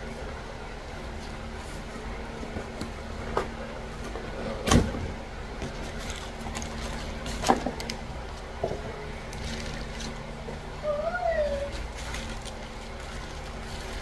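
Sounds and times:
steady low hum: 0.0s - 14.0s
paper packaging rustling: 5.6s - 8.5s, 9.2s - 10.3s, 11.6s - 14.0s.

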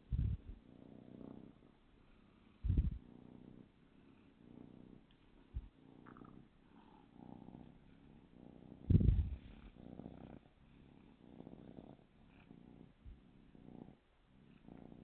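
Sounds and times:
kitten purring: 0.0s - 15.0s
loud low bumps: 2.7s - 3.0s.

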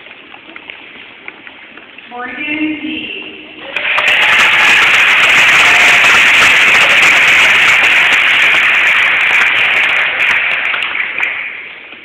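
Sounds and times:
crowd applauding: 3.6s - 12.0s.

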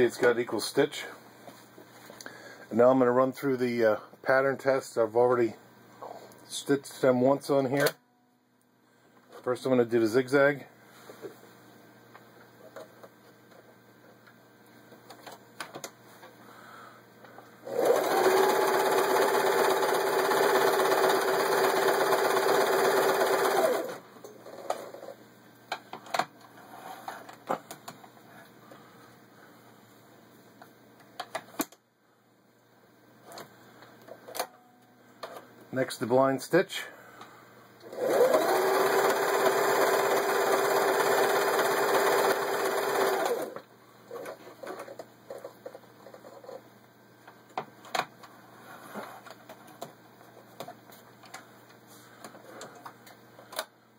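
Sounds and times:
sewing machine running: 17.6s - 24.0s, 37.8s - 43.6s.

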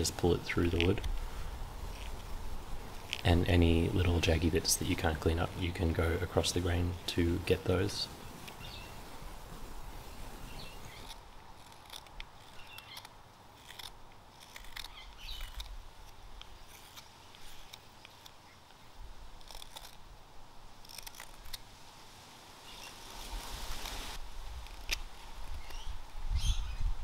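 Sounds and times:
knife scraping wood: 0.4s - 5.2s, 8.3s - 18.6s, 19.3s - 20.1s, 20.7s - 21.6s, 22.7s - 25.9s.

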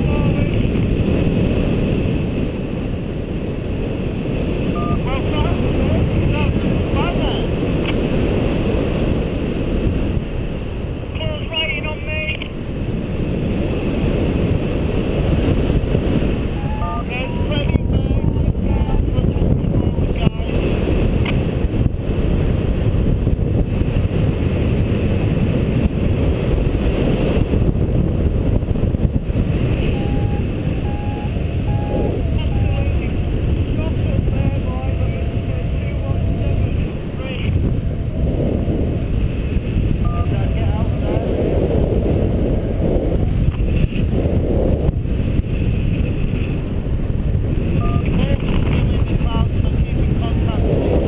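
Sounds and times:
wind rushing over microphone: 0.0s - 51.0s
variometer short beeps: 4.7s - 5.3s, 16.6s - 17.8s, 29.8s - 33.0s, 40.0s - 40.6s, 47.8s - 48.4s.

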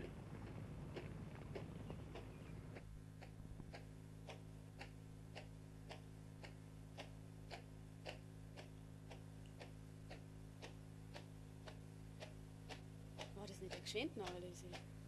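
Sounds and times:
faint footsteps: 0.0s - 4.4s
low hum: 0.0s - 15.0s.

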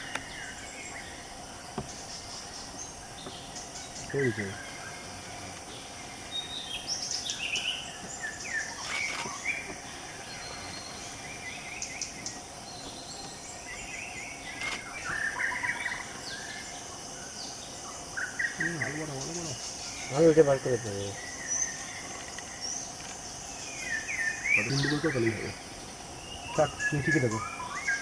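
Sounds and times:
birds chirping: 0.0s - 28.0s
insects droning: 0.0s - 28.0s.

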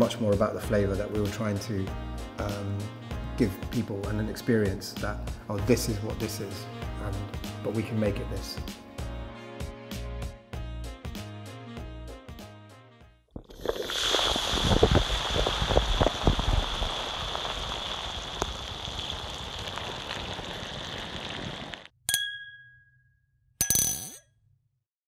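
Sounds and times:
hiss of outdoor noise: 13.6s - 21.9s.

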